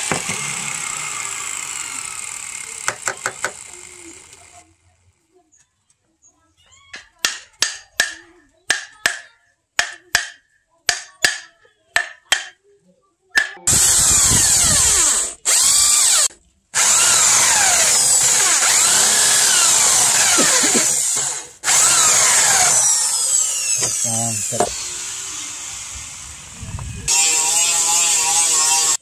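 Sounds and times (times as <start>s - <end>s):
electric drill boring: 0.0s - 4.6s, 13.7s - 29.0s.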